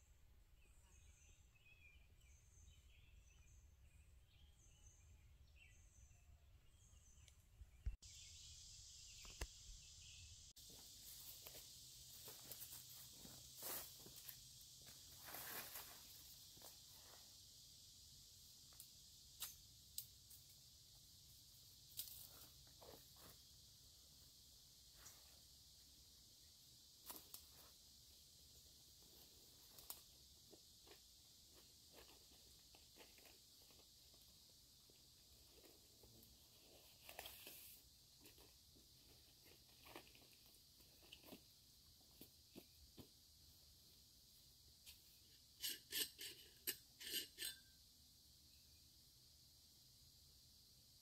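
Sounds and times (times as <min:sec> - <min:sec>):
high insect drone: 0:08.0 - 0:51.0
leaves rustling: 0:10.6 - 0:17.2.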